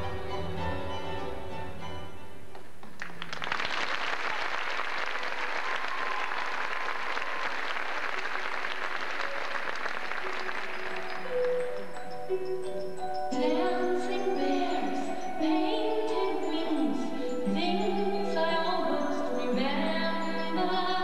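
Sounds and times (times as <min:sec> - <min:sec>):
music: 0:00.0 - 0:03.4, 0:07.8 - 0:21.0
audience applause: 0:02.8 - 0:11.7.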